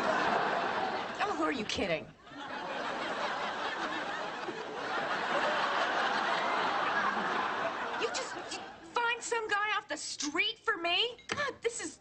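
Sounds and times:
studio audience laughing: 0:00.0 - 0:08.9.

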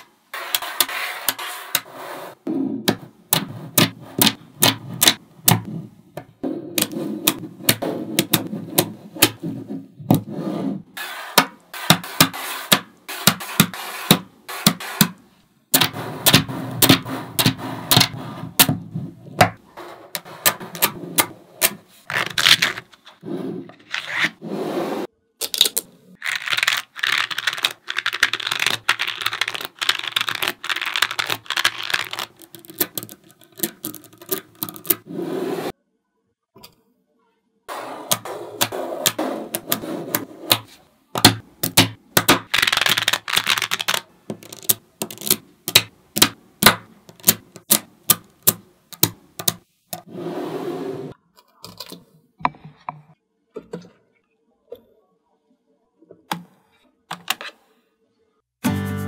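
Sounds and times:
magnet balls clicking together: 0:25.4 - 0:35.0, 0:41.2 - 0:49.6.

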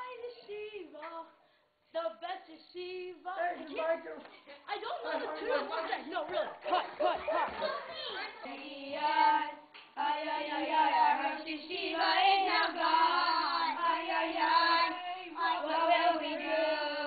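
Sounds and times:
children singing: 0:06.6 - 0:17.0.

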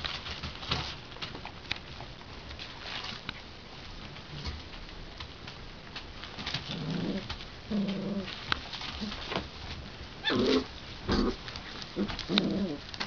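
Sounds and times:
newspaper crackling: 0:00.0 - 0:13.0
puppies growling: 0:06.6 - 0:09.2, 0:10.2 - 0:13.0.

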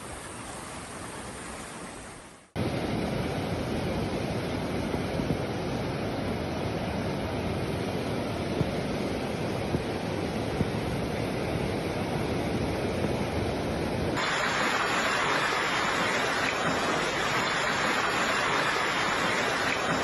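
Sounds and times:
floodwater rushing: 0:14.1 - 0:20.0.

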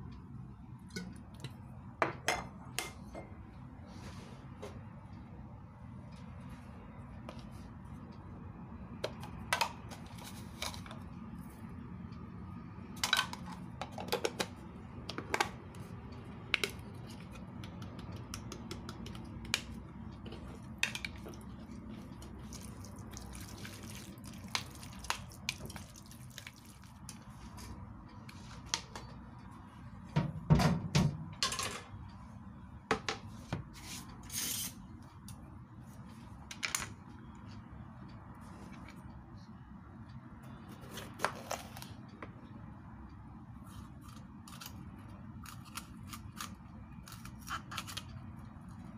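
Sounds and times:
liquid splashing: 0:22.4 - 0:27.0.

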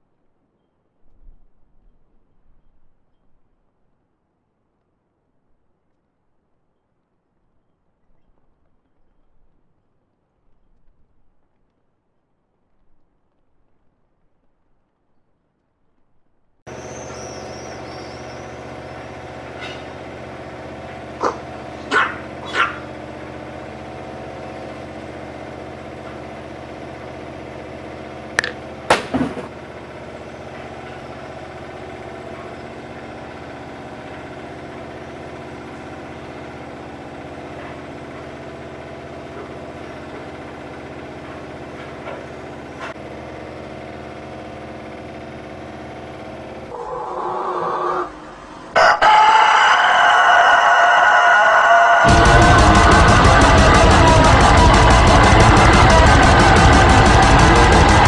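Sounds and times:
droning hum of held tones: 0:16.7 - 0:58.0
dog barking: 0:21.2 - 0:22.8.

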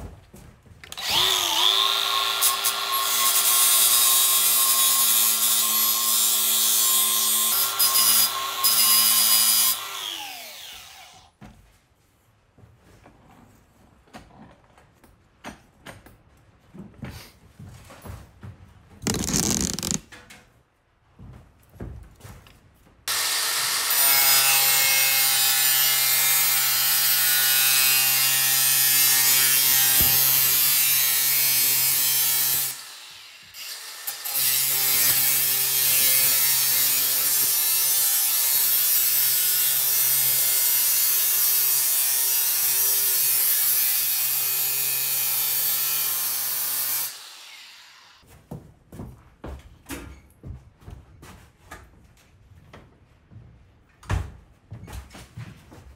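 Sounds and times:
angle grinder grinding metal: 0:19.1 - 0:20.0, 0:23.1 - 0:48.2.

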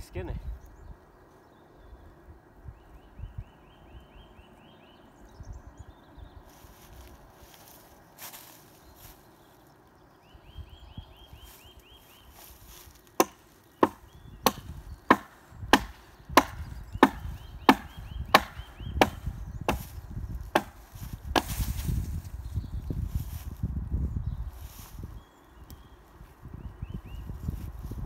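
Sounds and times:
axe chopping into wood: 0:13.2 - 0:19.9, 0:20.5 - 0:21.6.

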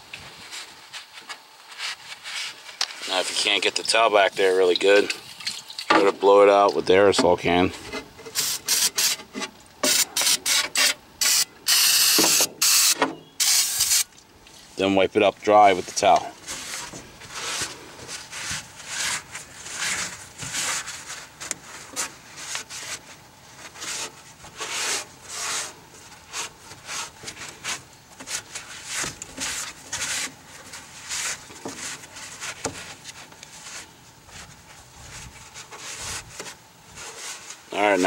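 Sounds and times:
towel scrubbing metal hull: 0:15.7 - 0:38.0.

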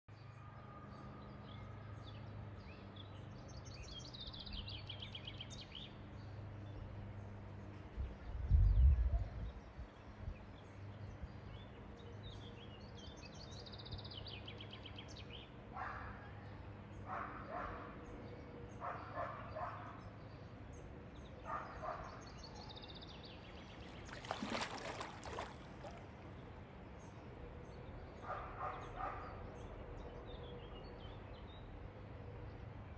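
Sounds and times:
songbirds trilling: 0:00.2 - 0:32.9
low background wash: 0:04.9 - 0:32.9
distant barking calls: 0:15.7 - 0:18.1, 0:18.7 - 0:20.2, 0:21.4 - 0:29.8.

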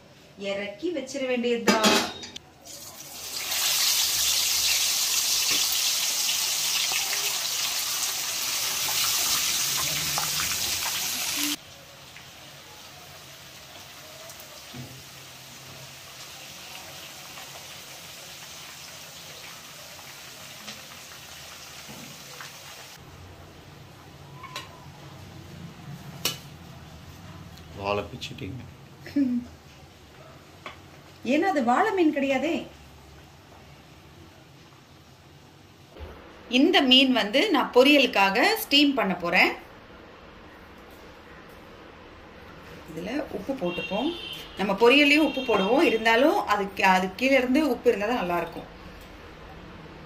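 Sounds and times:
fish sizzling in hot oil: 0:02.7 - 0:23.0.

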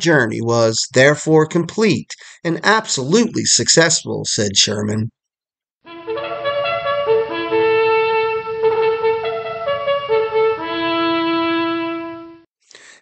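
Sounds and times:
trumpet-led brass music: 0:05.8 - 0:12.5.

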